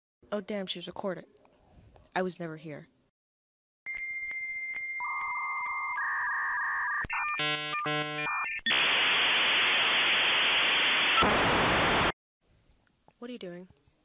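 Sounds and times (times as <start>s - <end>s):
electronic beeping tones: 4.9s - 8.8s
loud static hiss: 8.7s - 12.1s.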